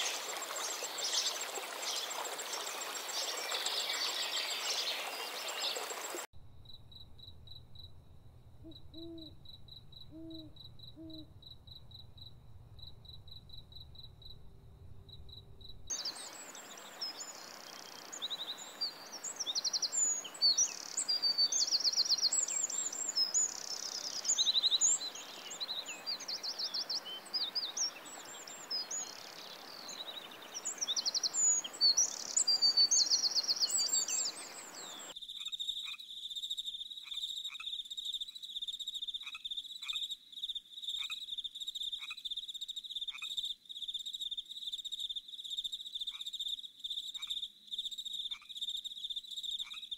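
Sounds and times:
birds chirping: 0:00.0 - 0:35.2
pulsing insect chirp: 0:05.8 - 0:21.1
high insect trill: 0:05.9 - 0:18.2
steady hiss: 0:12.3 - 0:35.1.

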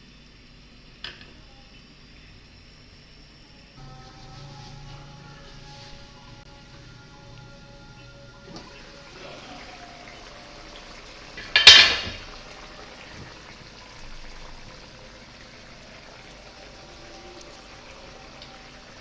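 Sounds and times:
gravy bubbling in a pan: 0:08.5 - 0:19.0.

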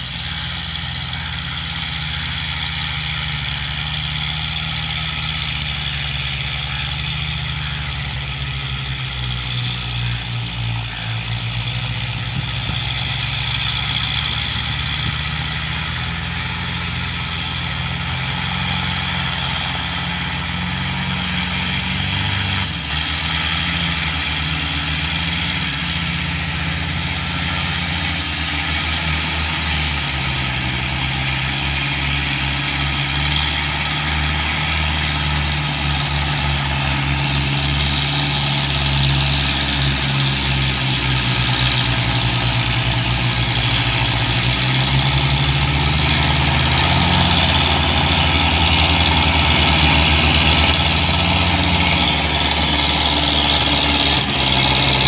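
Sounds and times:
diesel tractor engines running hard: 0:00.0 - 0:55.0.

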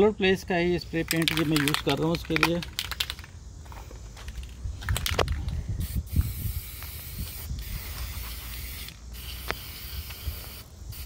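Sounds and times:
spray paint can hissing: 0:01.0 - 0:03.3, 0:05.8 - 0:11.0
sharp clicks: 0:01.0 - 0:03.4.

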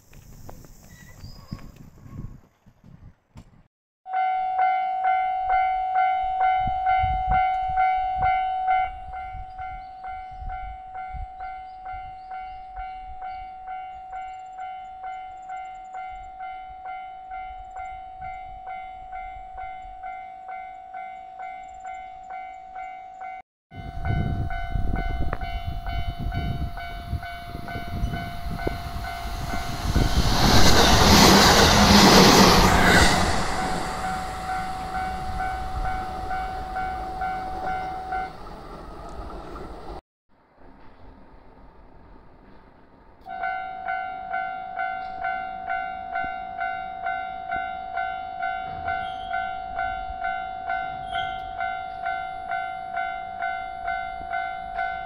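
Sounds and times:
level-crossing bell dinging: 0:04.1 - 0:09.1, 0:33.8 - 0:38.4, 0:43.3 - 0:55.0
train passing: 0:16.4 - 0:55.0.

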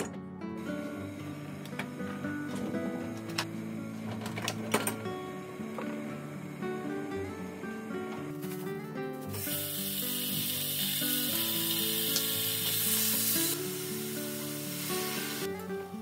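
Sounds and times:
background music: 0:00.0 - 0:16.0
meat sizzling in hot oil: 0:09.3 - 0:15.5.

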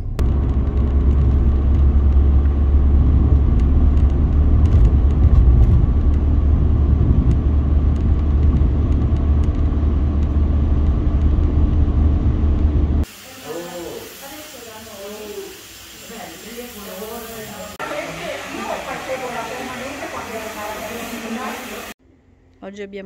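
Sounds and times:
car engine and road noise: 0:00.0 - 0:13.1.

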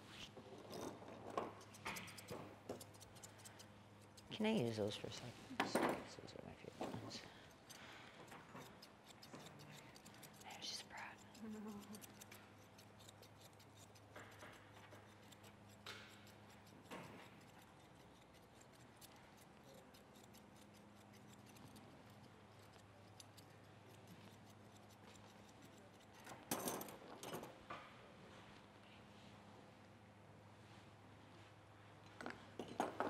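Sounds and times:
grooming shears snipping: 0:01.5 - 0:05.3, 0:06.9 - 0:26.5.

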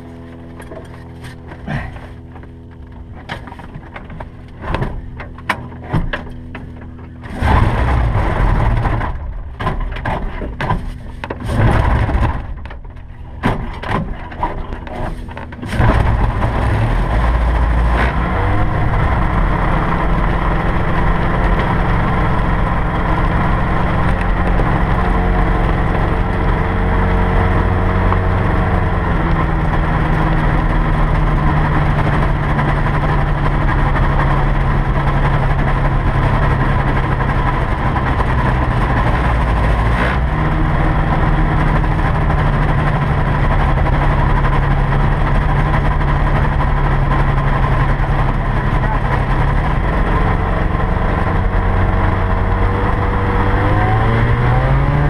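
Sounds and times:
piston engine starting and running: 0:00.0 - 0:55.0
clicks and knocks: 0:08.6 - 0:16.6.

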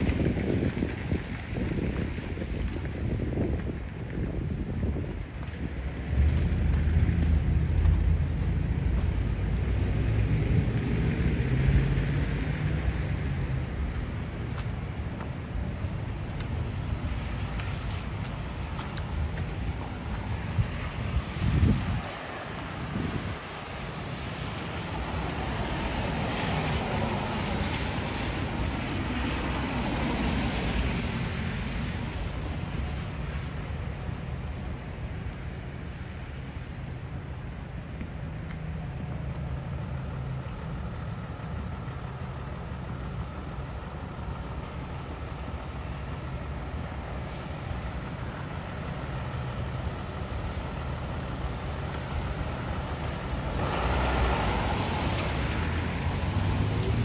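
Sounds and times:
tyres hissing on street: 0:00.0 - 0:57.0
vehicle engine running: 0:05.0 - 0:10.7.

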